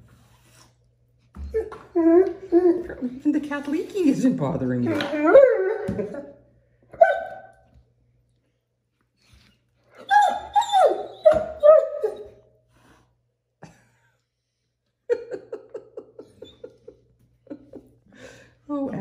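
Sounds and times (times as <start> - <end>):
puppy whining: 1.4 - 3.2, 4.8 - 7.6, 9.2 - 12.5, 16.2 - 17.0
person laughing: 15.1 - 18.0.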